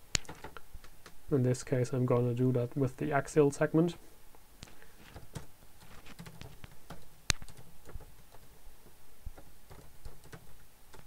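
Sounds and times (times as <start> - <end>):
computer keyboard typing: 0.2 - 1.2, 5.0 - 8.6, 9.3 - 11.0.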